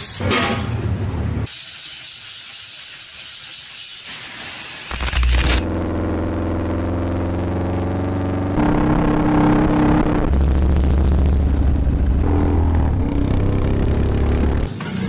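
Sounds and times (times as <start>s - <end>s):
motorcycle engines running: 5.6s - 14.7s.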